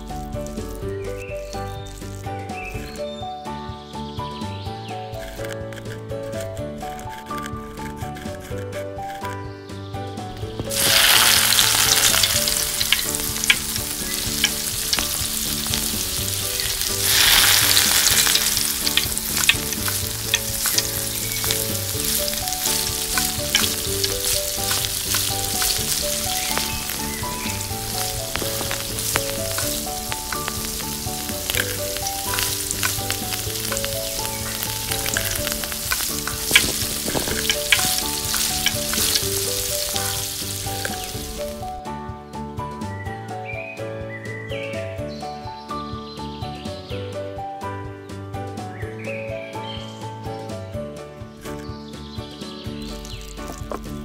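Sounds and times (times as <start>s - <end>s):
food sizzling in hot oil: 10.6s - 41.6s, 52.9s - 54.0s
utensil clicks stirring: 16.6s - 41.4s.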